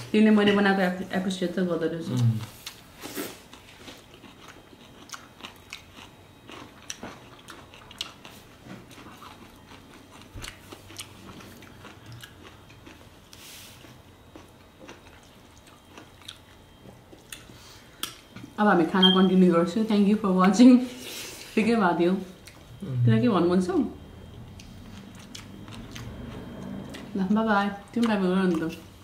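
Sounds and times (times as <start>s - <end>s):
chewing and crunching food: 2.0s - 18.5s, 22.3s - 22.8s, 24.0s - 29.0s.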